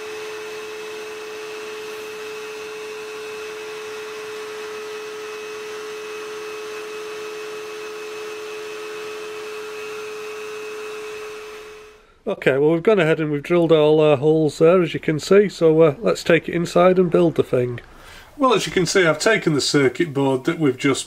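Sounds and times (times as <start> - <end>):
rotary tool whining: 0.0 - 12.0.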